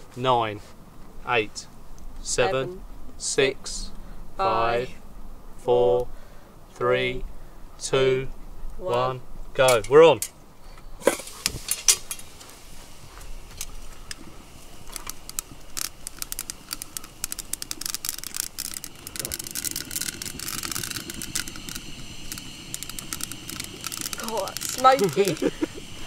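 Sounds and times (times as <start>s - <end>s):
fire rushing: 11.0s - 26.0s
twigs crackling and snapping: 11.4s - 26.0s.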